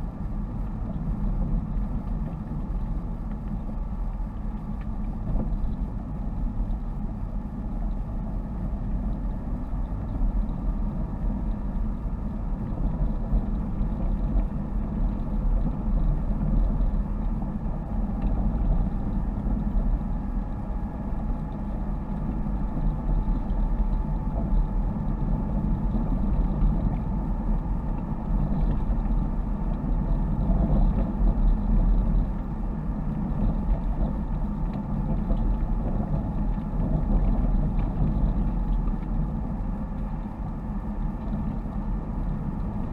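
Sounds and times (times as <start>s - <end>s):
car engine drone: 0.0s - 42.9s.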